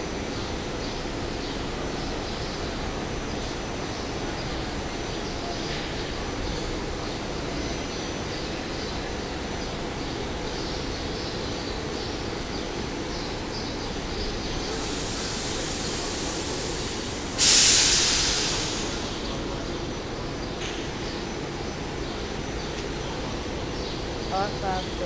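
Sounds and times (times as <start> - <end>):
train rolling rumble: 0.0 - 25.0
loud hiss: 14.5 - 20.3.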